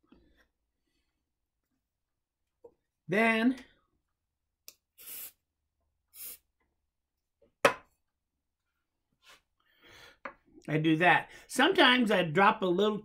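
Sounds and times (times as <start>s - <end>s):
aerosol spray hisses: 5.0s - 5.4s, 6.1s - 6.4s.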